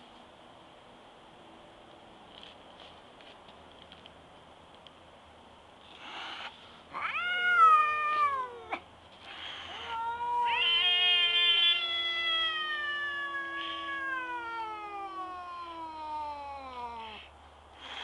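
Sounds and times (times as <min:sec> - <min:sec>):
cat hissing: 0:05.9 - 0:18.0
cat yowling: 0:06.9 - 0:17.3.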